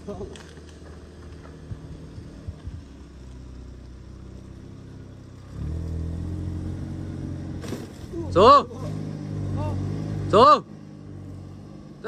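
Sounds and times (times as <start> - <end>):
car engine under load: 0.0 - 12.0.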